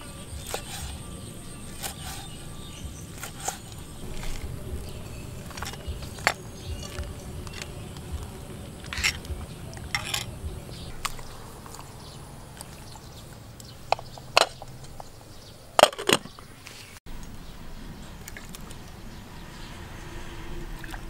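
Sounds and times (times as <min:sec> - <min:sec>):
high-pitched insect drone: 0:00.0 - 0:13.5
metal spoon in bowl: 0:08.8 - 0:10.4.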